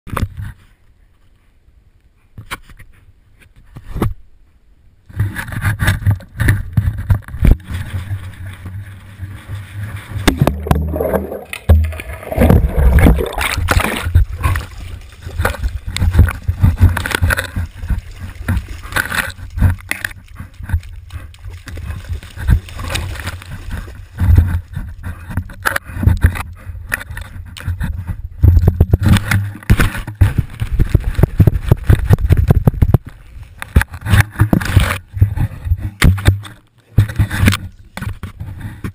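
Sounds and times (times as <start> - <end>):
water churning and splashing: 6.8 - 26.3
knocks and scrapes on camera housing: 24.2 - 38.9.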